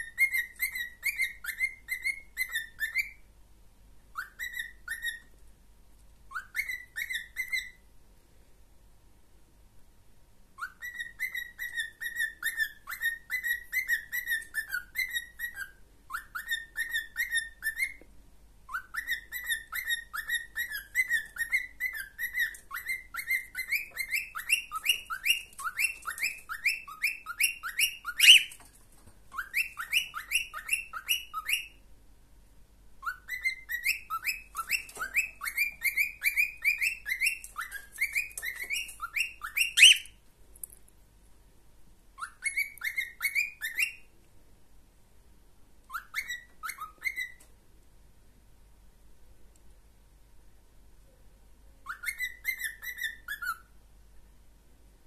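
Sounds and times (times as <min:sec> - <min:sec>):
cockatiel whistling: 0:00.0 - 0:03.3, 0:04.1 - 0:05.3, 0:06.3 - 0:07.8, 0:10.6 - 0:18.1, 0:18.7 - 0:28.6, 0:29.3 - 0:31.8, 0:33.0 - 0:40.2, 0:42.2 - 0:44.1, 0:45.9 - 0:47.4, 0:51.8 - 0:53.7.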